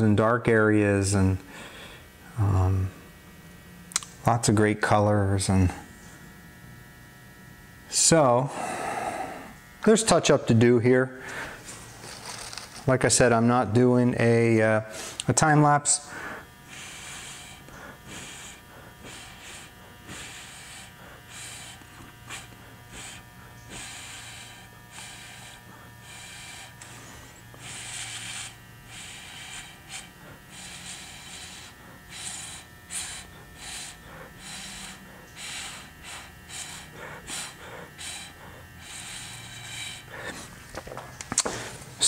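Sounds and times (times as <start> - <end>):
breath puffs through a straw: 16.1 - 40.6.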